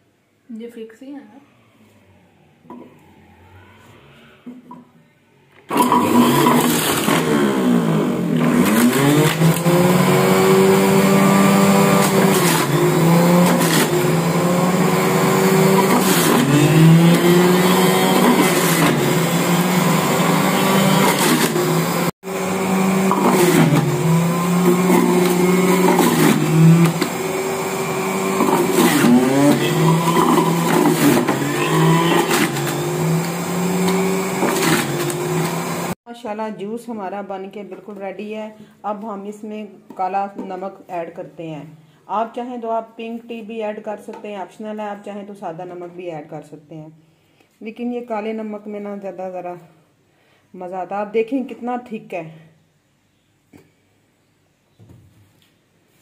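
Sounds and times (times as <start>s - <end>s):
juicer motor running loudly: 5.7s - 36.0s.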